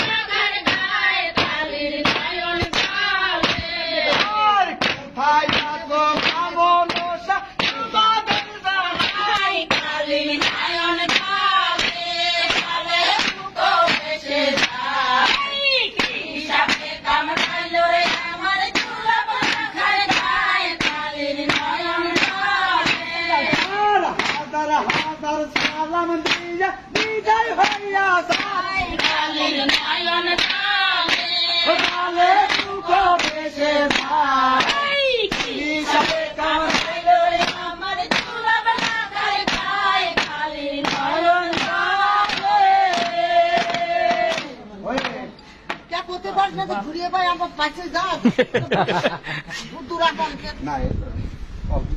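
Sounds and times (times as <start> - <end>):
women singing work song: 0.0 - 44.7
wooden beaters striking concrete: 0.0 - 45.9.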